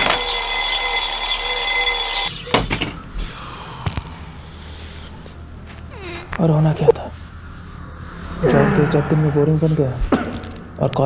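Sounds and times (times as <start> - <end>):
alarm clock ringing: 0.0 - 2.6.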